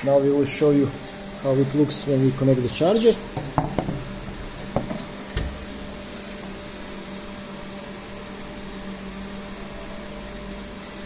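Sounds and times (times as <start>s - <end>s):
electrical hum with fan whir: 0.0s - 11.0s.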